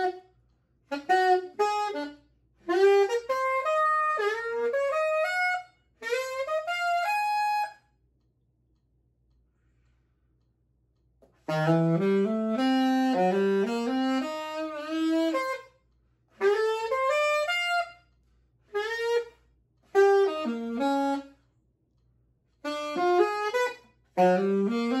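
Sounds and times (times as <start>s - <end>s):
alto saxophone bebop runs: 0.9s - 7.8s, 11.4s - 15.7s, 16.4s - 18.0s, 18.7s - 21.4s, 22.6s - 25.0s.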